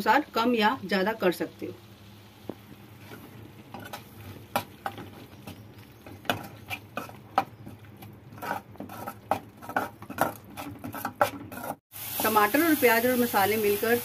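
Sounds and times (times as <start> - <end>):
metal spoon scraping metal pan: 8.3 - 11.8.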